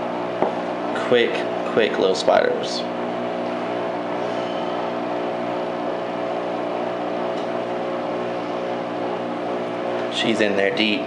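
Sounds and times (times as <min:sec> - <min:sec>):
steady mechanical hum: 0:00.0 - 0:11.0.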